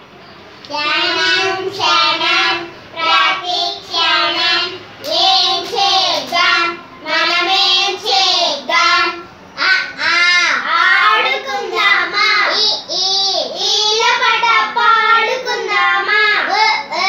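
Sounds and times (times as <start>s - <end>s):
girls singing together: 0.7s - 12.8s.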